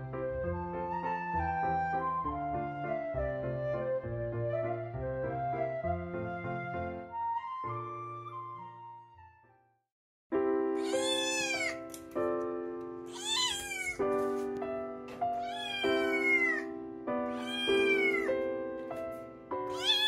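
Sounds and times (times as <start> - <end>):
background music: 0.0 - 9.6
kitten meowing: 10.8 - 11.9, 13.1 - 14.0, 15.4 - 16.7, 17.3 - 18.4, 19.7 - 20.0.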